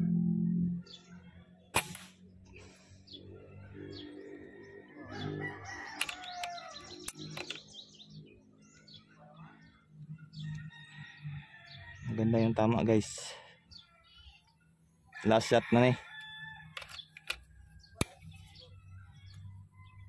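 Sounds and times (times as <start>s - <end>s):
birds calling: 0.8s - 20.0s
air rifle firing: 1.7s - 2.2s.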